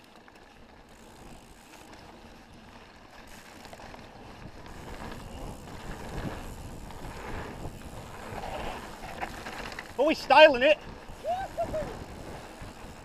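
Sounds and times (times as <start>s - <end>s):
bike tyres rolling on dirt: 0.0s - 13.0s
wind on microphone: 10.8s - 13.0s.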